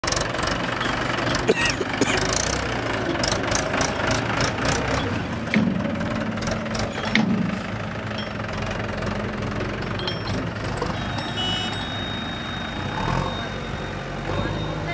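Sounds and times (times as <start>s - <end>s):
sharp knocks and rattles: 0.0s - 11.2s
tractor diesel engine running: 0.0s - 14.9s.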